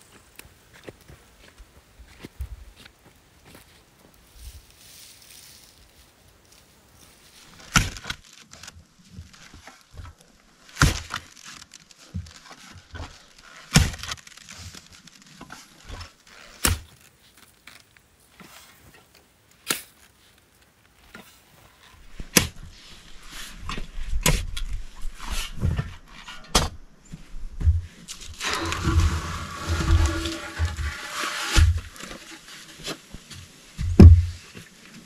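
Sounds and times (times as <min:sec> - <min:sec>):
sand sliding hiss: 0:03.5 - 0:07.6, 0:28.3 - 0:33.8.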